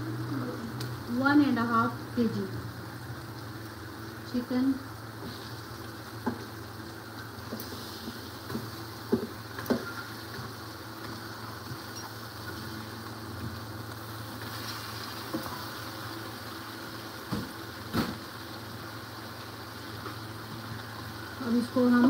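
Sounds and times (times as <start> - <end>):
faint pan sizzle: 0.0 - 22.0.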